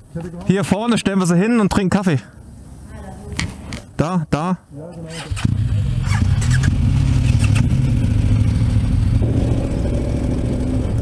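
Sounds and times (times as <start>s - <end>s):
motorcycle engine running: 5.4s - 11.0s.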